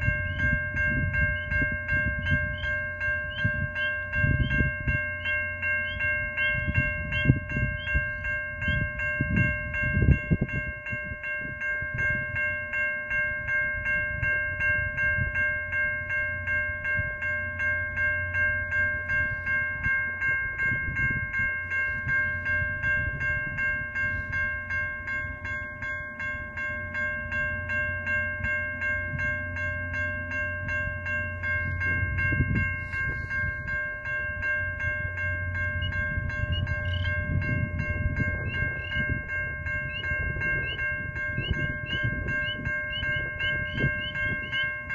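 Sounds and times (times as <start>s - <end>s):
level-crossing bell ringing: 0.0s - 44.9s
train rumbling: 0.0s - 44.9s.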